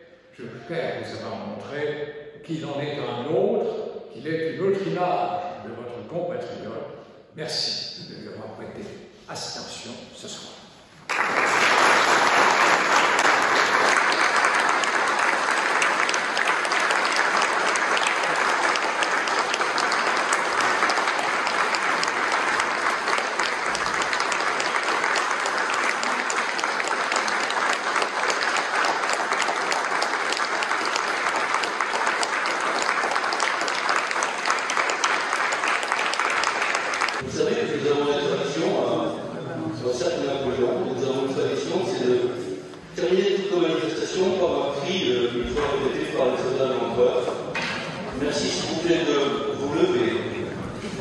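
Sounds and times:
audience applauding: 11.0s - 37.2s.

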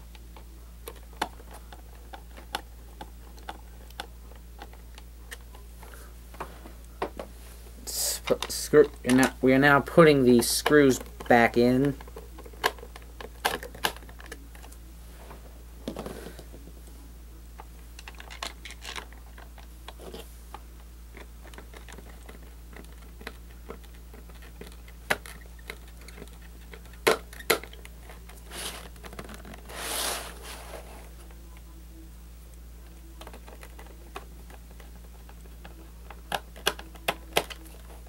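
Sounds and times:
steady low hum: 0.0s - 38.0s
hands rustling: 28.2s - 31.3s.

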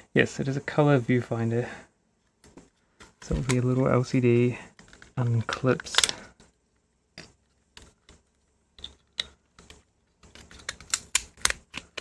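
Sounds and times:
plastic parts clicking and snapping: 2.4s - 3.7s, 4.7s - 6.6s, 7.2s - 12.0s.

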